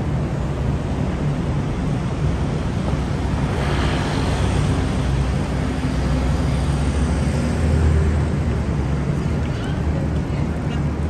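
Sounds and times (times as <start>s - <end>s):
low rumble of traffic engines: 0.0s - 11.0s
tyres hissing as vehicle passes: 2.6s - 9.8s.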